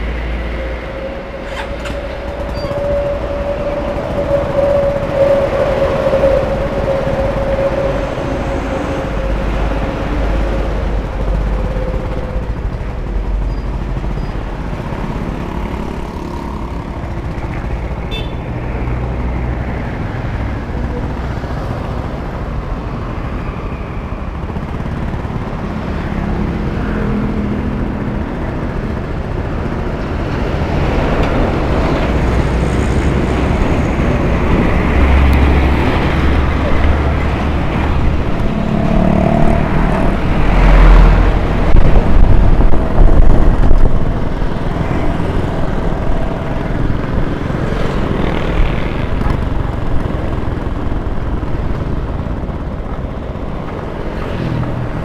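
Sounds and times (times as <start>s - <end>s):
traffic passing: 0.0s - 55.0s
truck passing: 0.0s - 55.0s
motor scooter running: 31.4s - 55.0s.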